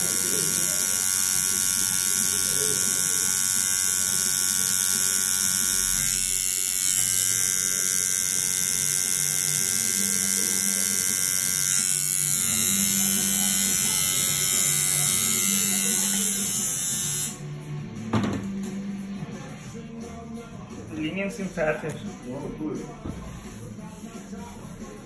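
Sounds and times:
tattoo machine buzzing: 0.0s - 17.4s.

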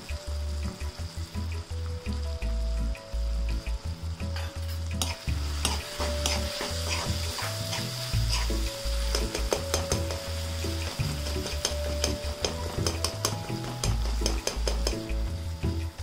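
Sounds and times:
vegetables sizzling in oil: 0.0s - 16.0s
metal spoon scraping a pan: 4.3s - 10.3s.

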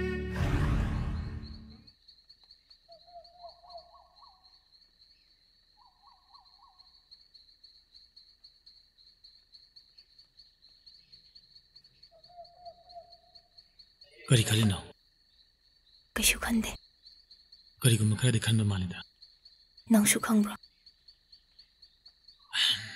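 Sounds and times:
string music: 0.0s - 1.8s
insect chirring: 0.8s - 22.9s.

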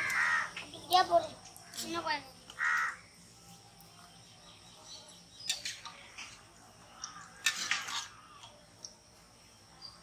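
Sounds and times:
metal spoon scraping a pan: 5.4s - 6.6s, 7.2s - 8.3s.

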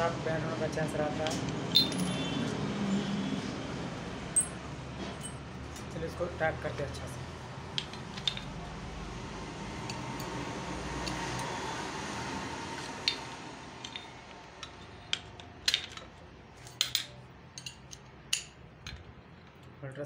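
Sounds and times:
metal tool clicks and clinks: 1.2s - 2.4s, 4.3s - 4.6s, 5.2s - 6.0s, 7.7s - 8.6s, 13.0s - 19.6s.

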